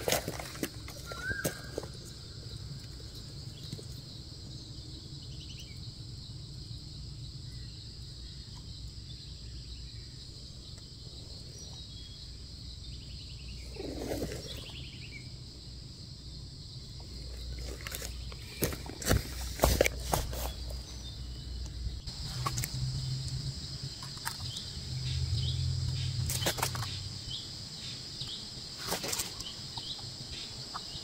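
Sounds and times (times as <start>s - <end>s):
high insect drone: 0.0s - 31.0s
short bird calls: 1.0s - 1.9s.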